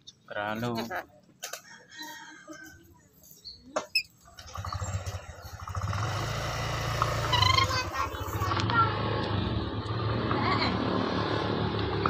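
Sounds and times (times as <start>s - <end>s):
motor engine in background: 4.2s - 12.0s
parrot squawking and chattering: 7.2s - 8.4s.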